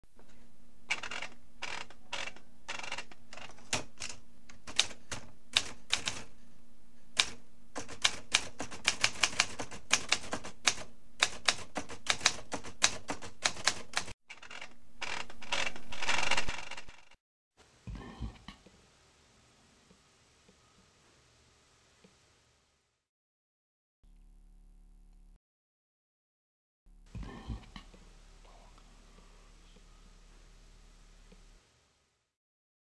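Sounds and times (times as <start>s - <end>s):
typewriter keys clacking: 0.9s - 6.3s, 7.2s - 17.1s.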